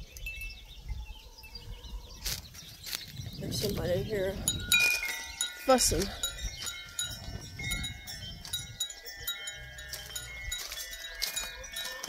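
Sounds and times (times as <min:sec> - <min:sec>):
high ringing tones: 0:04.1 - 0:12.0.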